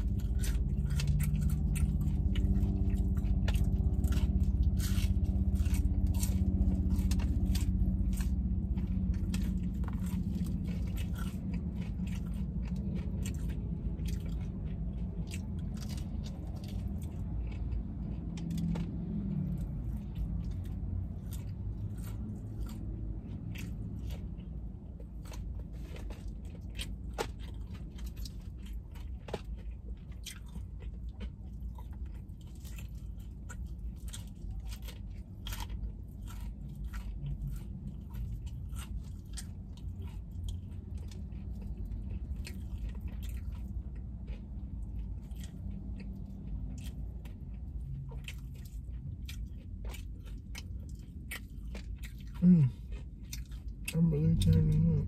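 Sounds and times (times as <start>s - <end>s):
crunching fried chicken: 0.0s - 55.0s
low hum: 0.0s - 55.0s
wet chewing: 0.0s - 55.0s.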